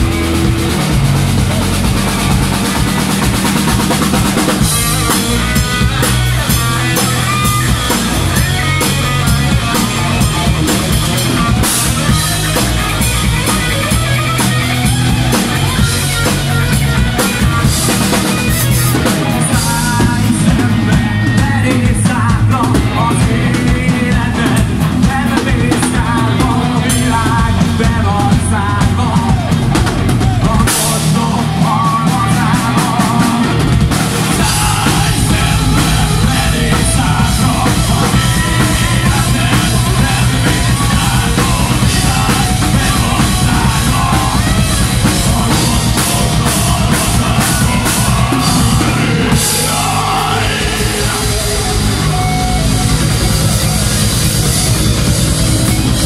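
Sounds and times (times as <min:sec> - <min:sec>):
bass guitar: 0:00.0 - 0:56.0
drum kit: 0:00.0 - 0:56.0
electric guitar: 0:00.0 - 0:56.0
person singing lead vocal: 0:17.4 - 0:54.5.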